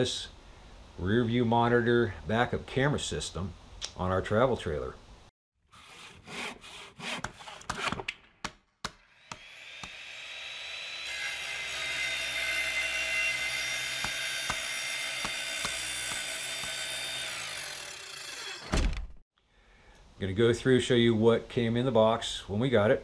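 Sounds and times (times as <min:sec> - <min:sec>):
power tool motor running: 0:09.1 - 0:18.7.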